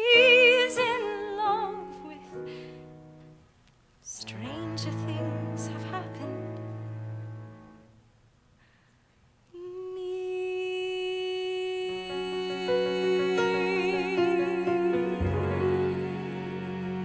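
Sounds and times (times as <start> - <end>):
musical accompaniment chords: 4.2 - 8.0, 12.1 - 17.0.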